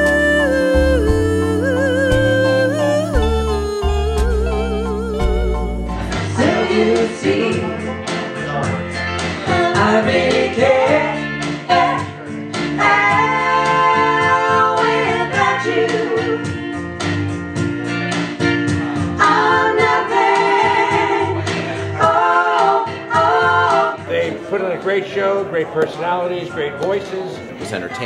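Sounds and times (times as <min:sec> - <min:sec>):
women singing in harmony: 0:00.0 - 0:08.0, 0:09.4 - 0:12.2, 0:12.8 - 0:16.6, 0:19.2 - 0:24.1
instrumental backing with steady beat: 0:00.0 - 0:24.5.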